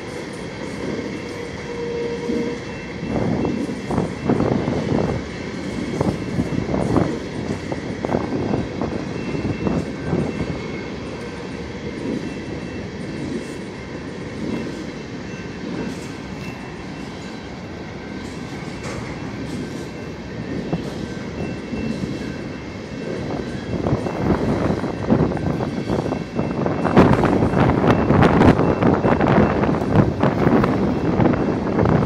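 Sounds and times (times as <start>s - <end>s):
train wheels rumbling on rails: 0.0s - 32.0s
wind buffeting microphone: 0.0s - 32.0s
high-pitched ring: 9.1s - 29.8s.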